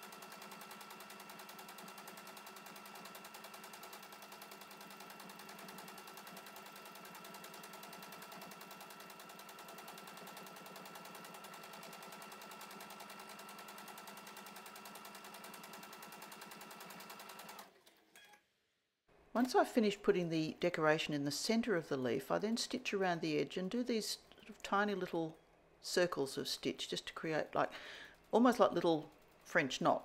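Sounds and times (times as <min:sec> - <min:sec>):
sewing machine stitching: 0:00.0 - 0:17.9.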